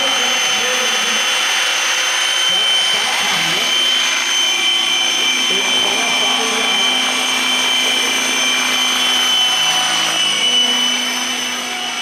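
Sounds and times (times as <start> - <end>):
model helicopter whine: 0.0 - 12.0.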